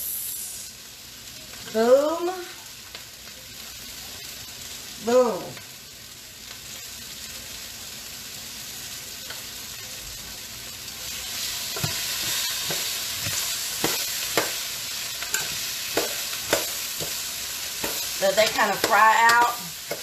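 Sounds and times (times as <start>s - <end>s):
vegetables sizzling in oil: 0.0s - 20.0s
spoon knocking against pan: 17.8s - 20.0s.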